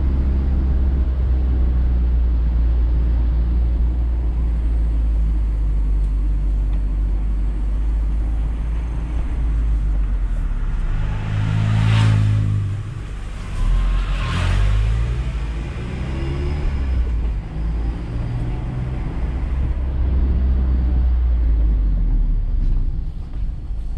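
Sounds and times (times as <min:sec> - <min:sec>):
road and wind noise: 0:00.0 - 0:23.9
passing car swoosh: 0:09.0 - 0:20.8.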